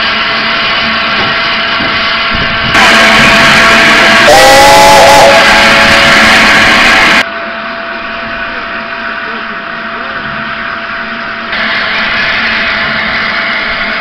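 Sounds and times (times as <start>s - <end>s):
steam locomotive hissing steam: 0.0s - 7.2s, 11.5s - 14.0s
steam whistle blast: 2.8s - 7.2s.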